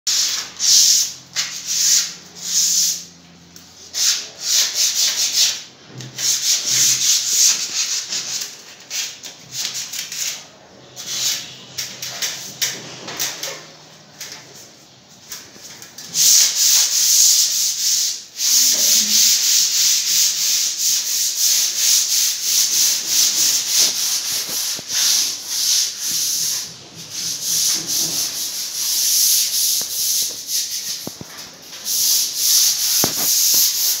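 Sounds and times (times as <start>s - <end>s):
sandpaper rubbing: 0.1s - 3.0s, 3.8s - 13.3s, 16.1s - 34.0s.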